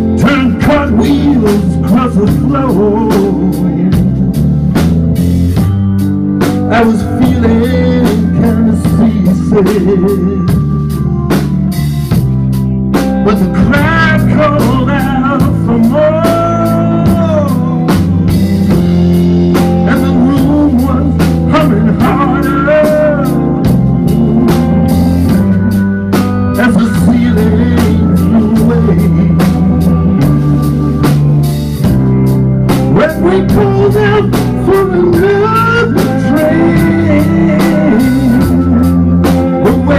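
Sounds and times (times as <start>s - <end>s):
bass and drum groove: 0.0s - 39.9s
electric guitar lead: 0.0s - 39.9s.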